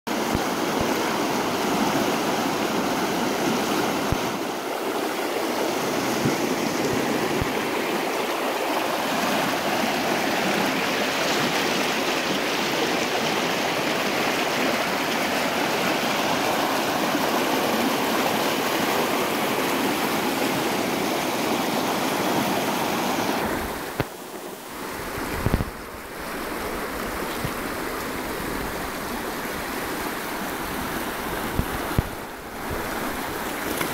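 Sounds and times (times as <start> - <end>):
river rushing over rapids: 0.1 - 33.9.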